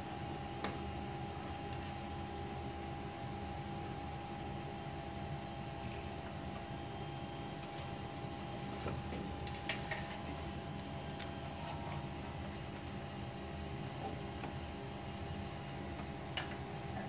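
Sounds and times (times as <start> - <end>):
printer fans humming: 0.0 - 17.0
light clicks and rustles of cables: 8.8 - 10.3, 11.0 - 12.2.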